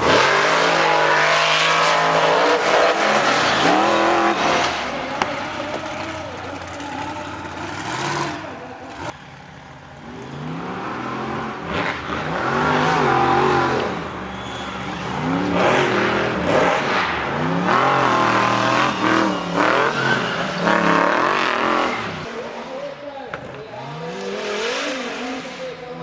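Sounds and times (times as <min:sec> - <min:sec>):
buggy engines revving hard: 0:00.0 - 0:22.5, 0:23.7 - 0:26.0.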